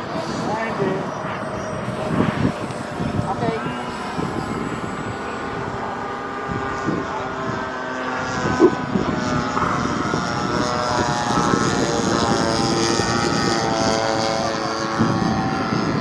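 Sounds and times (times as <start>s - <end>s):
model plane motor whine: 0.0s - 16.0s.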